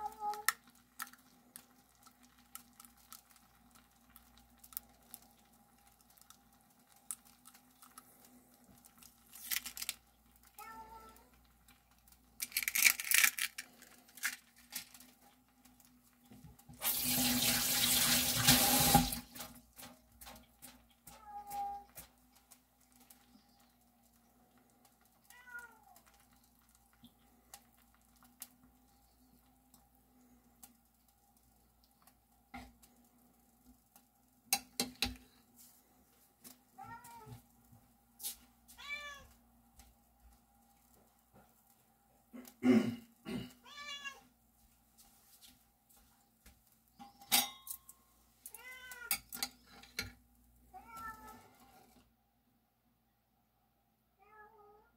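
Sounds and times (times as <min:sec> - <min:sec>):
sharp clicks and crackles: 0:00.2 - 0:16.0
kitchen tap running: 0:16.2 - 0:20.6
cat meowing: 0:25.3 - 0:26.0, 0:38.8 - 0:39.3, 0:43.6 - 0:44.3, 0:50.8 - 0:51.5
metal spoon clinking on glass: 0:47.0 - 0:47.9.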